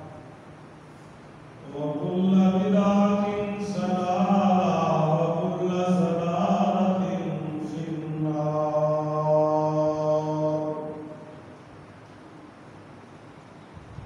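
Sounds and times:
man chanting into microphone: 1.6 - 11.4.

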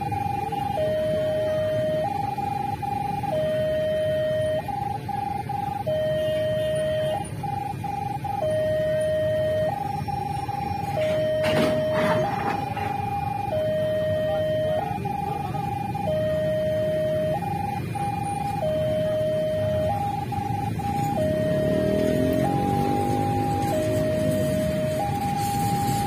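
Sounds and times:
level crossing alarm two-tone signal: 0.0 - 26.0.

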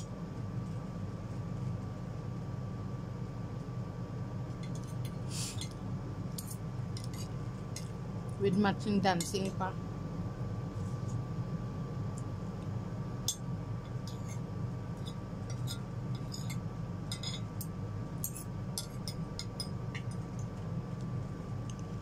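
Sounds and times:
cutlery clinking on plate: 15.5 - 17.5.

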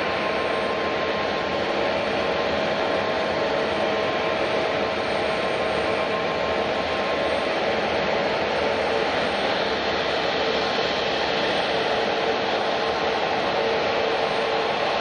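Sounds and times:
jet engines rushing and whining: 0.0 - 15.0.

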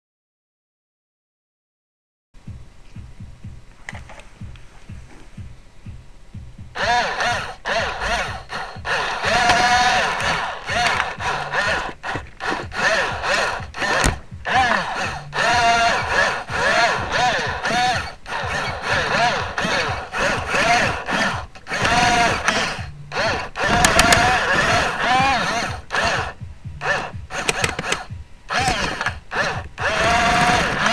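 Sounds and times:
toy electric motors whining: 6.8 - 30.9
sharp click: 9.3 - 14.7, 23.6 - 26.2, 26.9 - 29.7.

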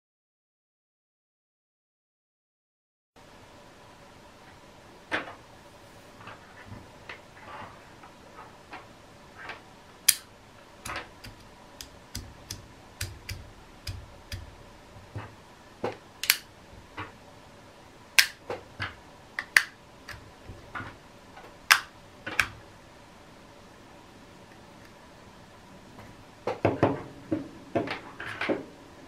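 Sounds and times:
magnets snapping into place: 16.2 - 16.5, 18.2 - 18.4.

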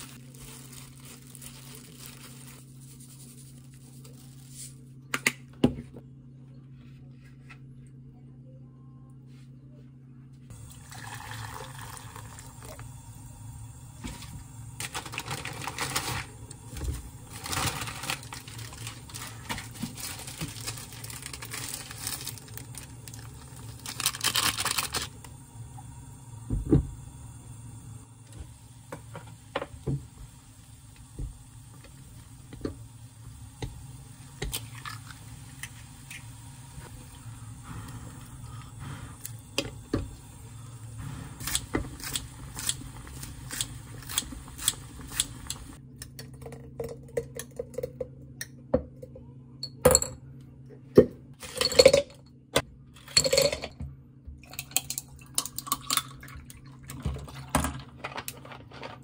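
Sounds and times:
rustling and tearing packaging: 0.0 - 4.8, 14.8 - 16.4, 17.2 - 25.2
low steady hum: 0.0 - 59.0.

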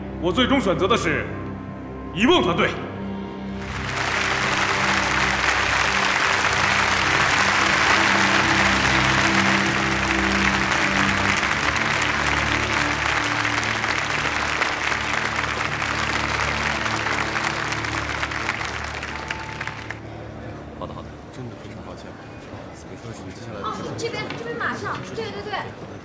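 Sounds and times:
music of held low notes: 0.0 - 23.4
audience applauding: 3.6 - 20.1.

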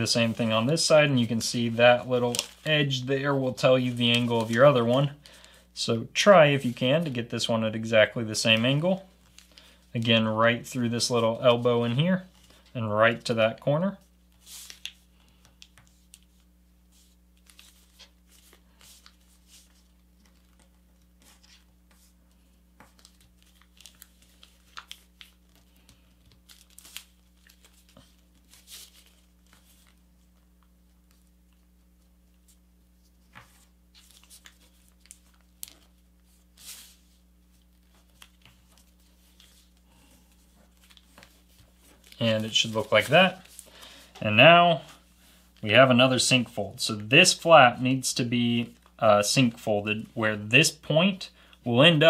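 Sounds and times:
paper crinkling and rustling: 0.0 - 5.6, 8.1 - 12.7, 14.0 - 44.1
low steady hum: 0.0 - 52.0.

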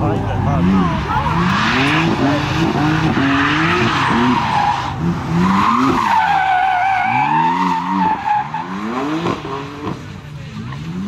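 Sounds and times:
car engine revving: 0.0 - 11.0
tyres squealing on asphalt: 0.0 - 11.0.

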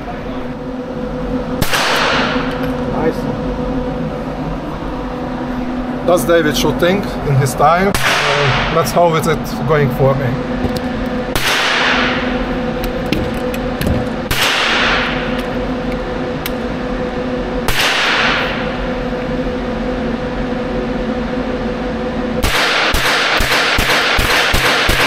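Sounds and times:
steady hum: 0.0 - 25.0
gunshots echoing indoors: 1.6 - 2.5, 11.3 - 12.4, 14.3 - 15.4, 17.6 - 18.6, 22.4 - 25.0.

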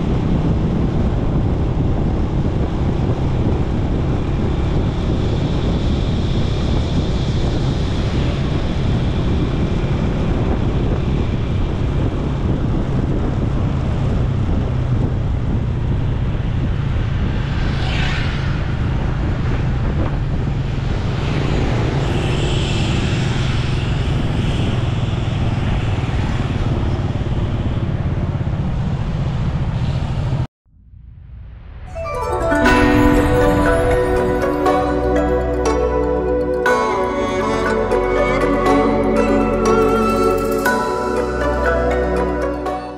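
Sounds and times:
wind buffeting microphone: 0.0 - 30.5
motorcycle road noise rumble: 0.0 - 31.8.

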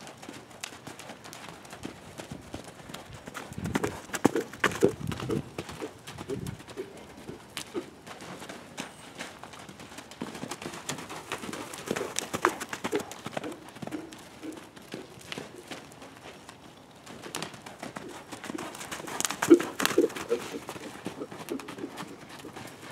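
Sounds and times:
hooves thudding on sand: 0.0 - 22.9
sharp hoof clicks: 0.0 - 22.9.

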